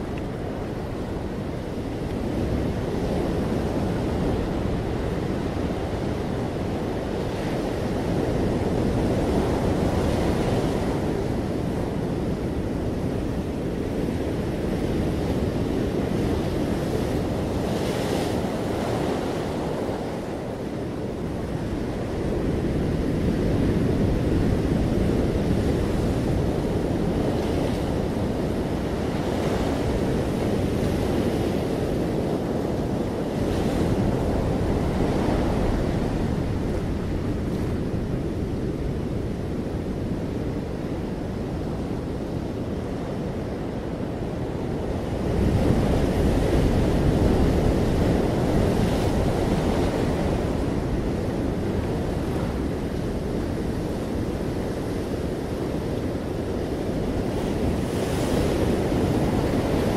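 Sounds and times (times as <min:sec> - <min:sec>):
ocean surf breaking: 0:24.4 - 0:39.2, 0:40.6 - 0:59.9.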